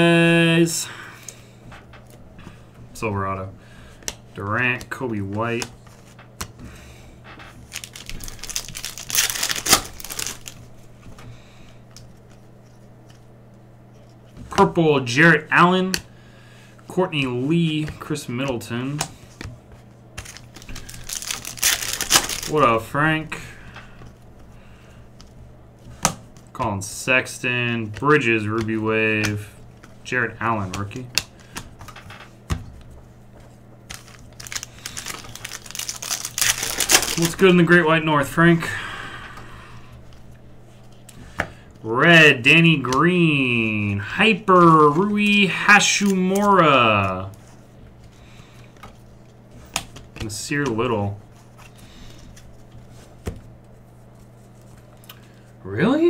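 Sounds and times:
cards rustling: 2.0 - 16.1, 17.0 - 38.6, 44.2 - 55.5
trading cards handled: 7.4 - 14.8, 17.1 - 22.9, 27.8 - 38.0
foil wrapper tearing and crinkling: 7.7 - 10.6, 20.2 - 22.7, 33.9 - 37.5.

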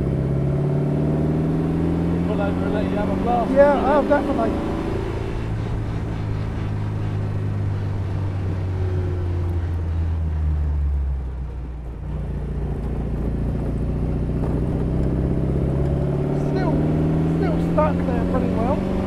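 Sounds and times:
car engine accelerating: 0.0 - 19.0.

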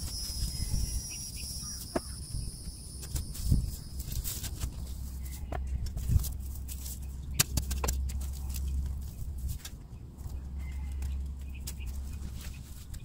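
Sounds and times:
hand spade scraping dry soil: 0.0 - 9.8.

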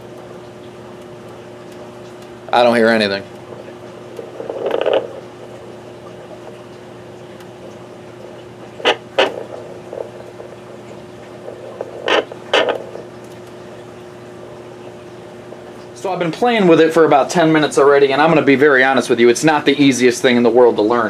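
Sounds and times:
faint hum: 0.0 - 21.0
doppler speaker static: 2.4 - 18.4
sharp pops: 7.4 - 13.6.

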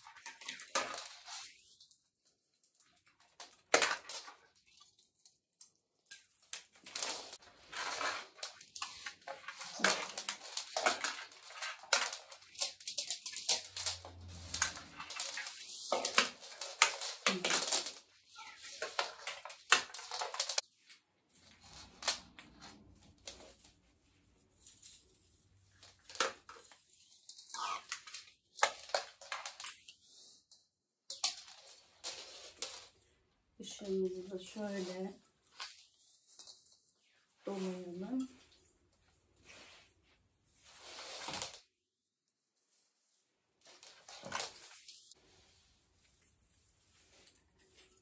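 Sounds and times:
plastic bulbs and wire rattling: 5.6 - 23.7, 31.1 - 33.0.

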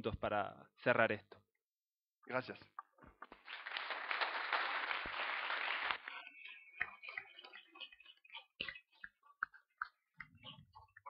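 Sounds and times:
group applauding: 3.2 - 7.0.

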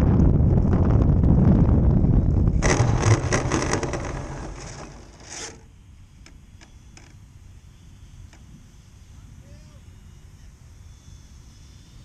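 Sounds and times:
model airplane rolling on grass: 0.0 - 7.5
grass scraping against airframe: 2.5 - 5.7.

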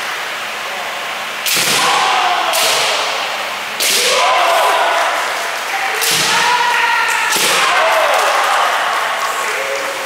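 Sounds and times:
bamboo swords striking armour: 1.4 - 3.2, 3.8 - 4.5, 6.0 - 6.6
fencers shouting: 1.5 - 9.7.

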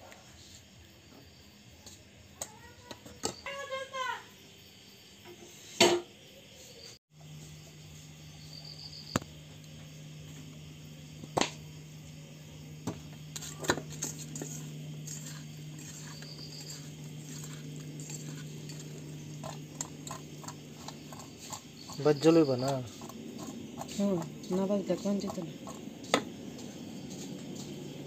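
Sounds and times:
steady low hum: 7.2 - 28.0.

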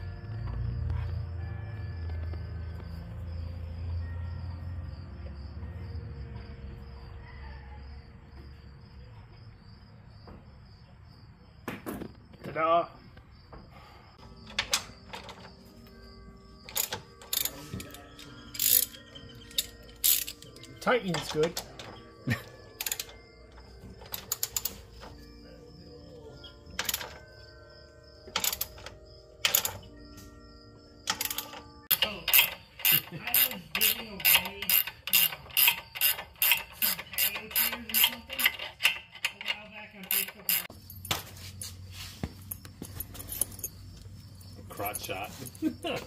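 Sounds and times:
ratchet wrench clicking: 16.7 - 21.6, 22.8 - 23.2, 31.1 - 40.7.

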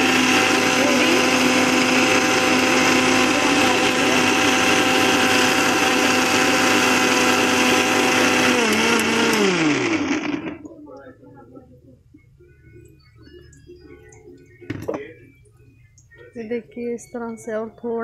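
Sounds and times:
mixer grinder whining: 0.0 - 10.7.

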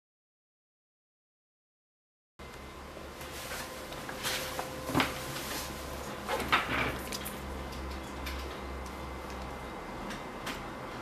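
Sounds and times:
low electrical hum: 2.4 - 11.0.

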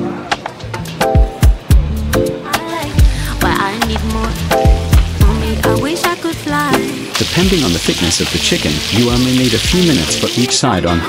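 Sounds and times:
background music with kick drum: 0.0 - 11.0.

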